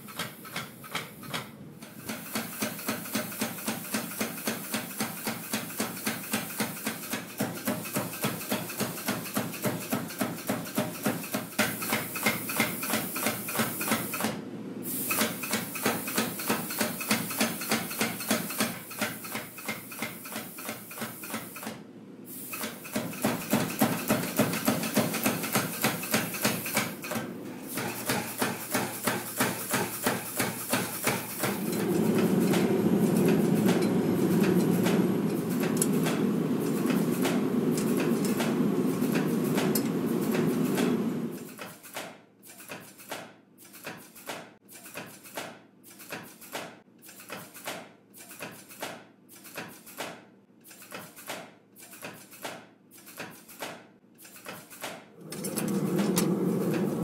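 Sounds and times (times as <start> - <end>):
power hammer pounding steel: 22.6 - 41.3.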